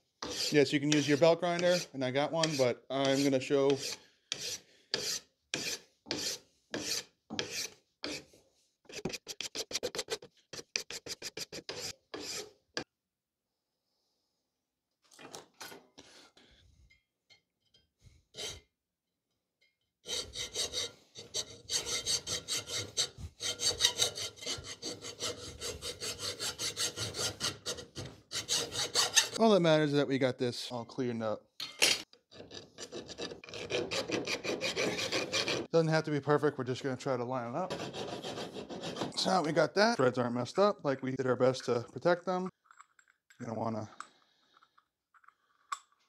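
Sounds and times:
hand file stroking metal: 0.2s - 12.6s, 18.3s - 18.7s, 20.0s - 29.4s, 32.4s - 35.7s, 37.7s - 39.6s
hacksaw cutting metal: 20.0s - 29.4s, 32.4s - 35.7s, 37.7s - 39.5s.

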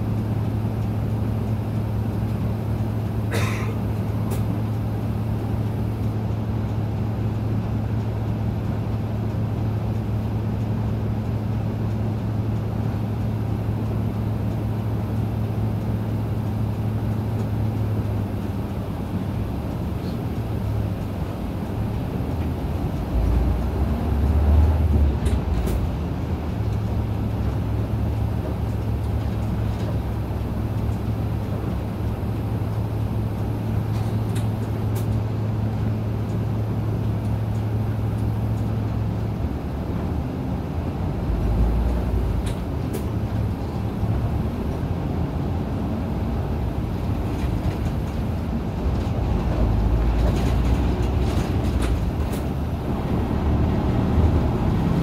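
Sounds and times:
bus engine drone: 0.0s - 55.0s
road rumble: 0.0s - 55.0s
light rattles and clicks: 47.0s - 52.7s.

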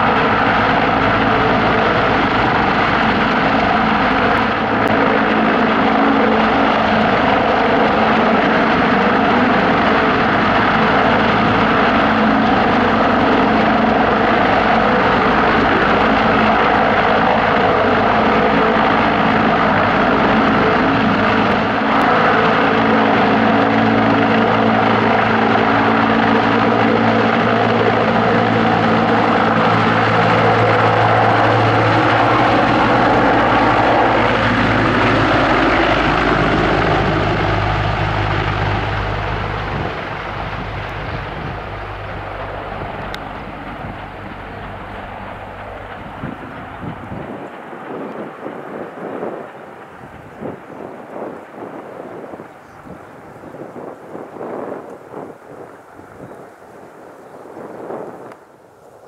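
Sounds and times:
helicopter engines and rotors droning: 0.0s - 59.0s.

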